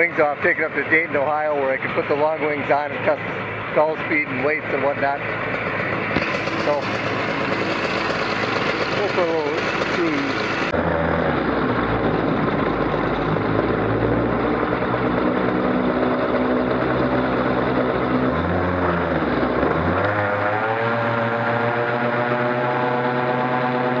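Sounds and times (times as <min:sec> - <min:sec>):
ultralight aircraft engine and propeller: 0:00.0 - 0:24.0.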